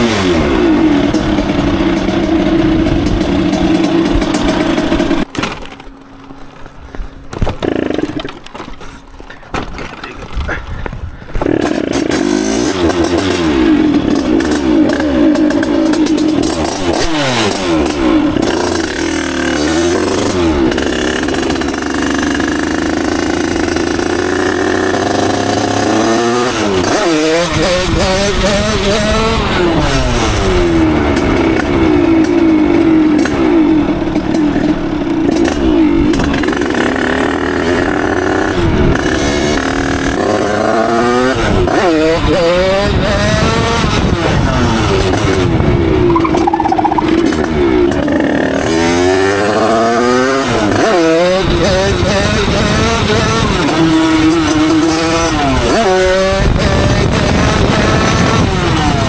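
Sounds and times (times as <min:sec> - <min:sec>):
moped engine revving: 0:00.0 - 0:05.3, 0:07.4 - 0:08.5, 0:11.4 - 0:59.0.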